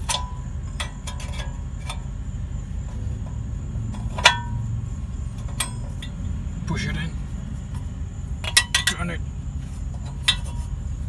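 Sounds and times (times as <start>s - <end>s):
steady low rumble: 0.0s - 11.0s
sharp metallic clink: 4.2s - 4.7s, 8.4s - 9.2s.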